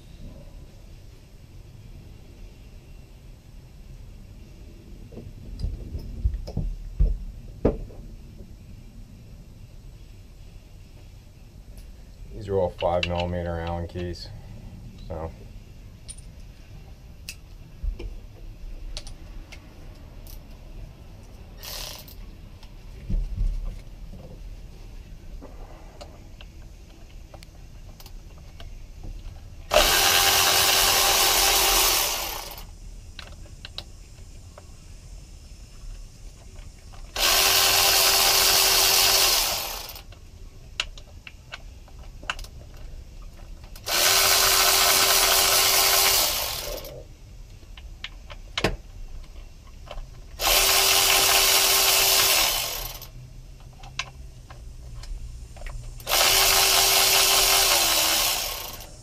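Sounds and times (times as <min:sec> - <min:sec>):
cordless drill running: 0:29.7 - 0:32.7, 0:37.1 - 0:40.0, 0:43.8 - 0:46.9, 0:50.4 - 0:53.1, 0:56.0 - 0:58.9.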